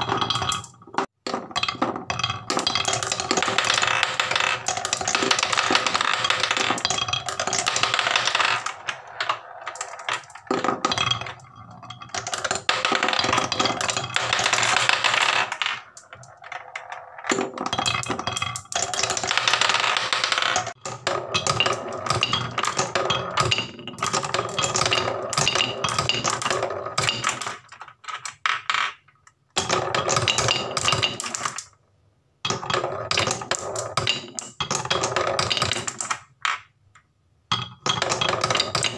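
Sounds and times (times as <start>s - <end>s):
marbles rattling in wooden bowl: 0.0s - 0.8s, 1.6s - 28.4s, 37.8s - 38.9s
marble rolling on wooden track: 0.0s - 31.8s, 32.5s - 36.7s, 37.5s - 38.9s.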